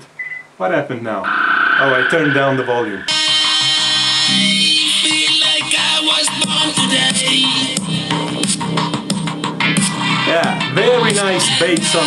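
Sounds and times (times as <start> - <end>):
music through portable speaker: 3.1 - 12.0.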